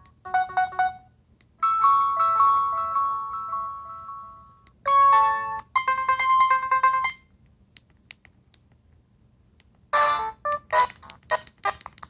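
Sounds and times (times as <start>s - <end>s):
phone ringtone: 1.6s - 7.2s.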